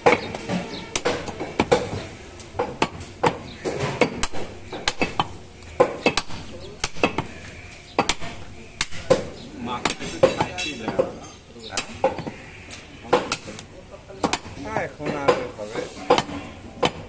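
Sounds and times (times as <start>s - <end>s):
cleaver chopping meat on wood: 0.0s - 11.2s, 13.1s - 13.5s, 16.1s - 17.0s.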